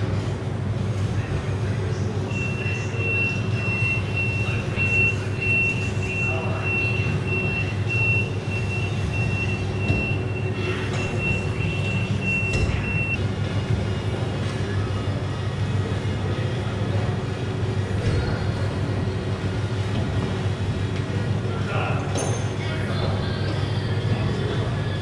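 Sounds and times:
reversing alarm beeping: 0:02.3 - 0:13.3.

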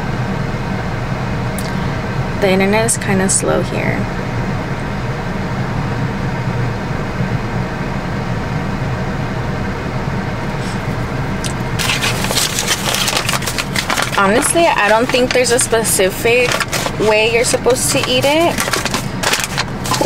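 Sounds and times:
car engine hum inside cabin: 0:00.0 - 0:20.0
paper bag crackling: 0:10.6 - 0:20.0.

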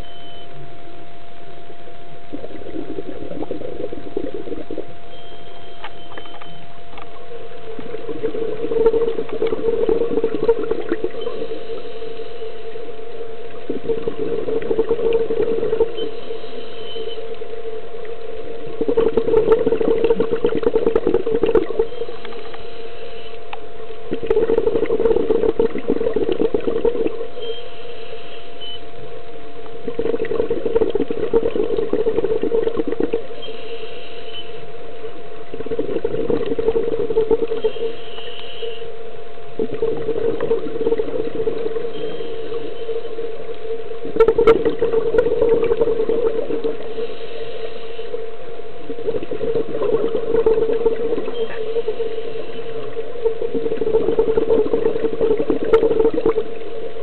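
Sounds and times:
steady hum: 0:00.0 - 0:57.0
bubbling underwater exhalations: 0:02.2 - 0:05.2, 0:07.0 - 0:12.0, 0:12.7 - 0:16.4, 0:18.0 - 0:22.4, 0:23.9 - 0:27.5, 0:29.7 - 0:33.5, 0:35.1 - 0:38.1, 0:39.5 - 0:57.0
regulator inhalation hiss: 0:33.4 - 0:34.6, 0:46.8 - 0:48.3.

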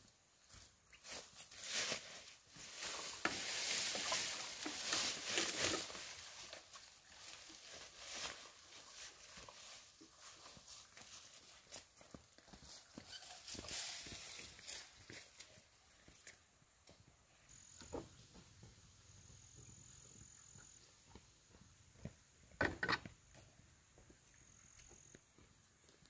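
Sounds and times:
footsteps: 0:00.4 - 0:26.0
dry leaves rustling: 0:01.0 - 0:15.7.

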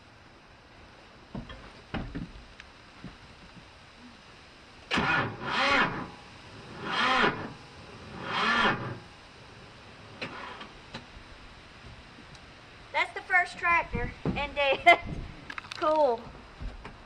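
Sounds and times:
starter motor cranking: 0:04.9 - 0:06.1, 0:06.7 - 0:09.0, 0:10.2 - 0:10.8.

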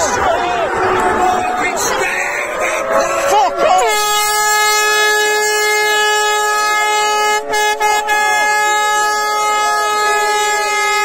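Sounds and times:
air horn long high note: 0:02.4 - 0:11.0.

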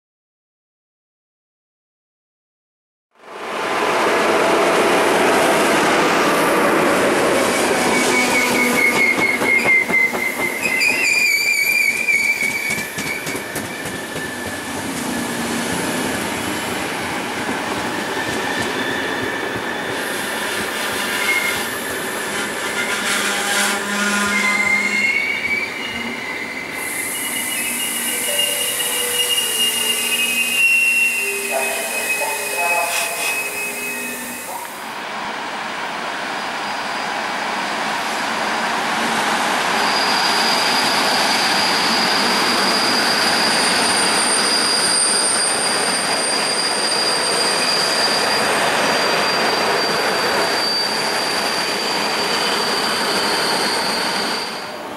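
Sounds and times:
wheels squealing: 0:07.4 - 0:34.8, 0:39.7 - 0:54.8
train wheels clattering on rails: 0:07.9 - 0:23.1.

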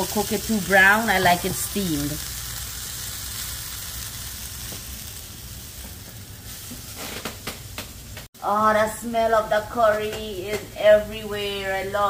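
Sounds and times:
vegetables sizzling in a frying pan: 0:00.0 - 0:08.3.

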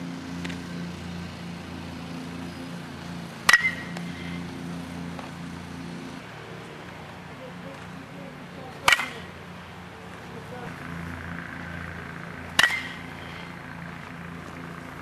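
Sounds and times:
steady low hum: 0:00.0 - 0:15.0
bat hitting ball: 0:03.4 - 0:04.3, 0:08.8 - 0:09.4, 0:12.4 - 0:13.5.

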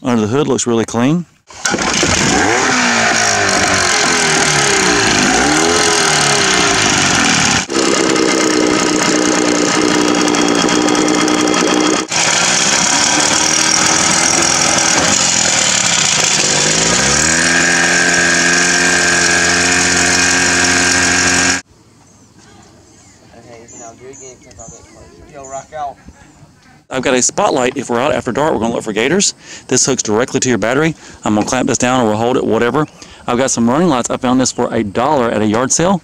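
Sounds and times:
outboard motor revving: 0:01.5 - 0:21.6.

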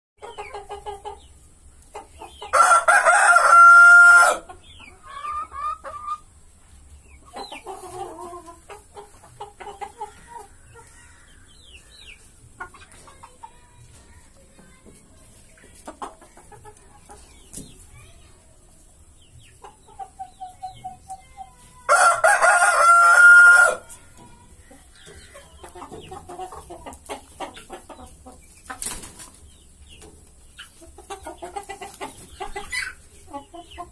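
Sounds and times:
chickens clucking softly: 0:00.2 - 0:33.9
rooster crowing: 0:02.5 - 0:04.4, 0:21.9 - 0:23.8.

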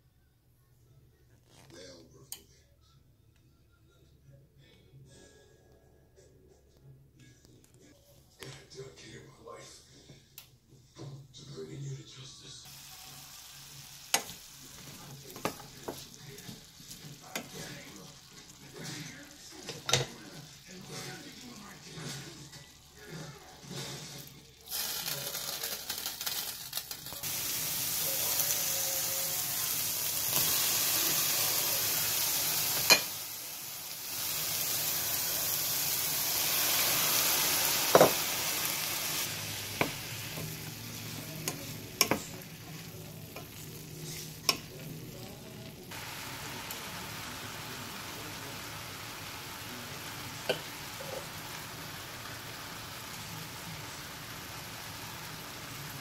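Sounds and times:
vegetables sizzling in a pan: 0:12.7 - 0:56.0.

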